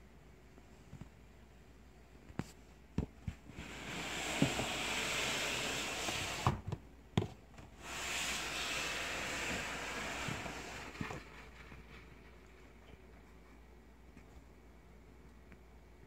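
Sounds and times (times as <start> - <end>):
plastic tub scraping: 3.5 - 6.6, 7.8 - 12.8.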